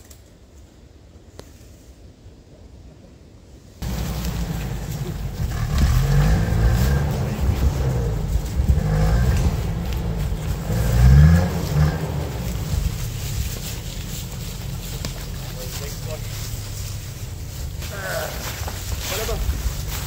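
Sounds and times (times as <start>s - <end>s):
wind rumble on microphone: 3.8s - 17.8s
car engine revving: 3.8s - 20.0s.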